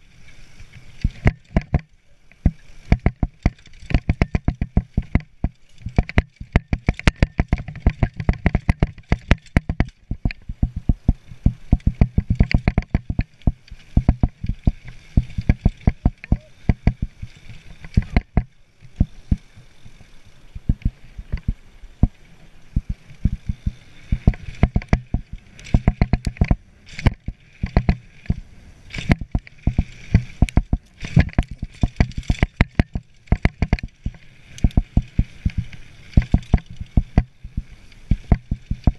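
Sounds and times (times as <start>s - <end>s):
mountain bike rattling over bumps: 0.0s - 38.9s
tyre and wind rush: 18.9s - 38.9s.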